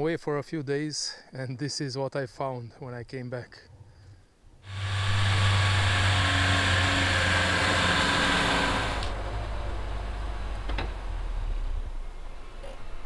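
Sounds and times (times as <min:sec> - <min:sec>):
car engine hum: 0:04.7 - 0:12.8.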